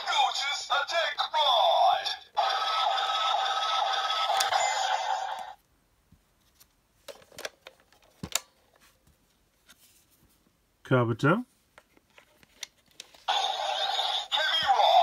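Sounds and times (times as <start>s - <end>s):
toy electronic sound effect: 0.0s - 5.6s, 13.3s - 15.0s
toy handling clicks: 3.8s - 4.7s.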